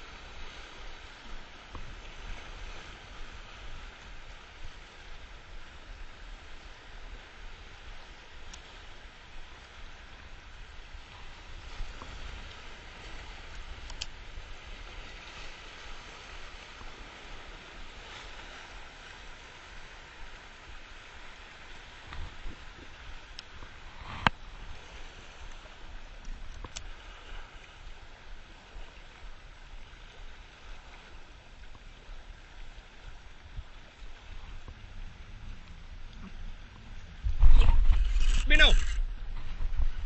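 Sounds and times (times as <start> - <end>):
waves breaking on rocks: 0.0 - 40.0
wind buffeting microphone: 8.9 - 40.0
surf breaking on rocks: 37.2 - 40.0.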